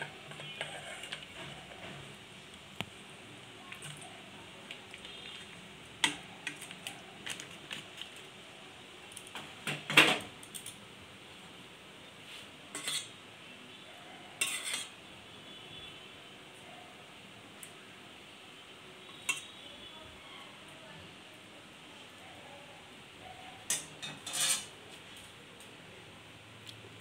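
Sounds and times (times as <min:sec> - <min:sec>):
spatula scraping metal pan: 0:00.0 - 0:02.1, 0:12.7 - 0:13.2, 0:14.4 - 0:15.0, 0:23.7 - 0:24.7.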